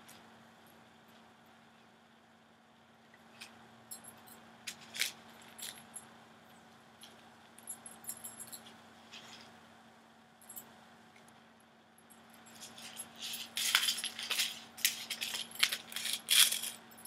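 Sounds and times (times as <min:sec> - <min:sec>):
faint low hum: 0:00.0 - 0:17.0
metal jewelry clinking: 0:03.9 - 0:06.1, 0:07.6 - 0:09.4, 0:12.0 - 0:17.0.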